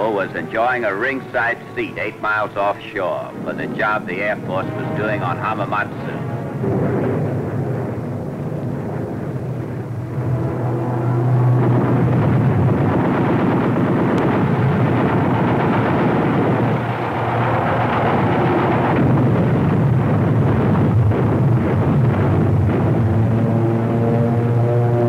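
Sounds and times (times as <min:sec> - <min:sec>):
rumble of explosions: 0:00.0 - 0:25.0.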